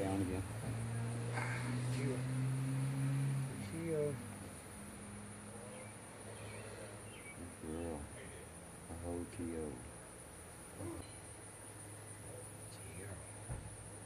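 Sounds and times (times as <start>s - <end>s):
insect chorus trilling: 0.0s - 14.0s.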